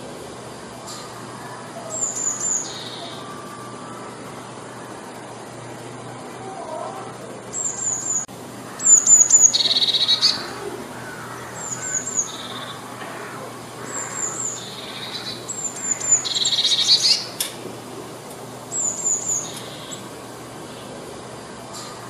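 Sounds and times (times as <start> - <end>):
bird singing high notes and trill: 0.9 - 5.3, 7.5 - 17.5, 18.6 - 21.0.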